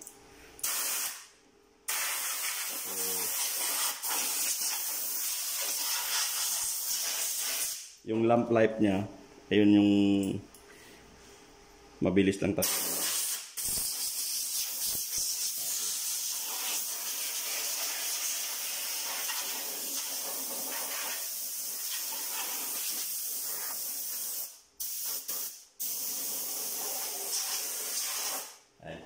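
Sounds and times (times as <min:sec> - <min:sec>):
compressed air blow gun hissing: 0:00.6 - 0:01.2, 0:01.9 - 0:07.9, 0:12.6 - 0:28.6.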